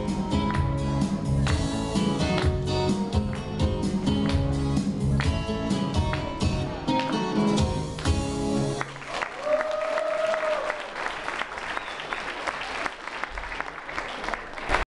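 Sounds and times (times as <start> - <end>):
audience applause: 8.7 - 14.9.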